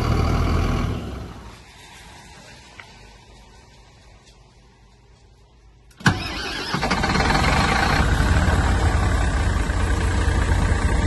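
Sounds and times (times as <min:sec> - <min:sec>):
diesel engine idling: 0:06.0 - 0:11.0.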